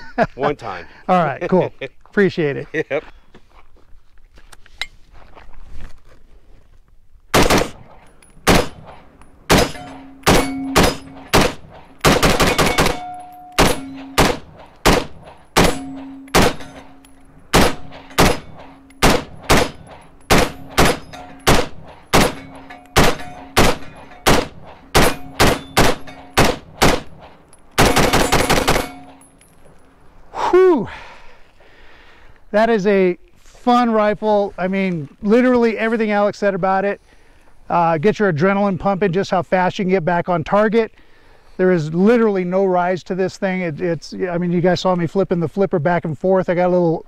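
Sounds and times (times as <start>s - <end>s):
rifle shots: 7.3s - 29.2s
ringing tone after shots: 7.8s - 29.4s.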